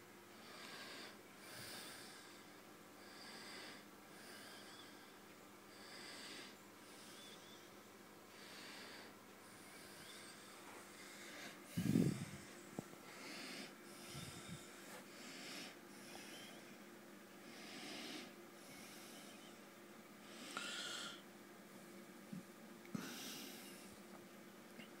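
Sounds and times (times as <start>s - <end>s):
soft slow breathing: 0.3s - 24.1s.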